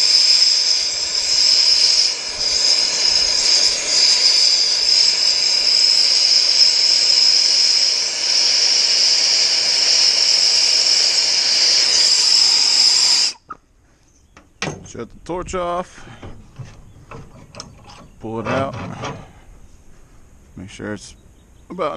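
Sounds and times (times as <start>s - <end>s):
torch flame hissing: 0.0s - 13.6s.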